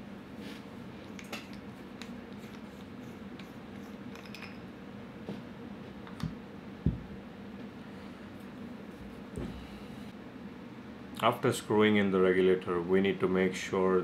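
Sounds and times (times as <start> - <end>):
steady low hum: 0.0 - 14.0
short dull thumps: 6.8 - 7.2.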